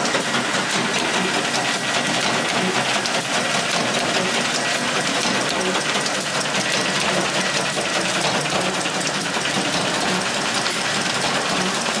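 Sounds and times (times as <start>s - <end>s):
machine clattering: 0.0s - 12.0s.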